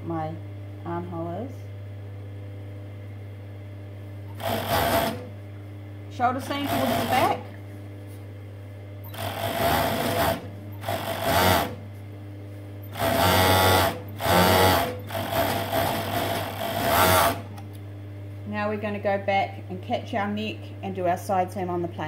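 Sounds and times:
overlocker stitching: 4.4s - 5.3s, 13.0s - 17.5s.

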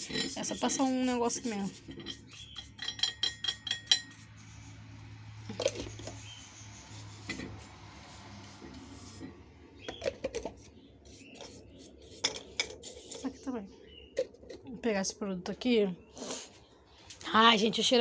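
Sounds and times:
metallic clinks of burner parts: 1.9s - 4.2s.

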